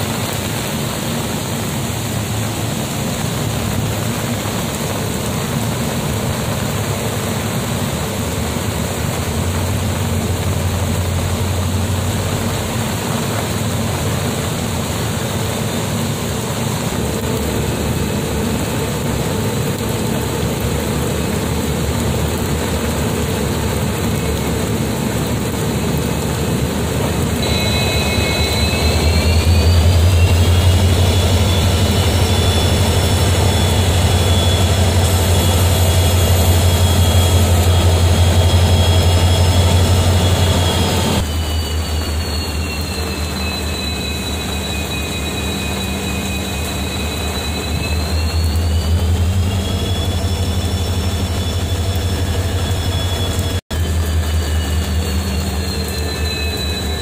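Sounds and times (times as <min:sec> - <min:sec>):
locomotive low drone: 0:00.0 - 0:57.0
rain hiss: 0:00.0 - 0:57.0
rising whine: 0:00.0 - 0:57.0.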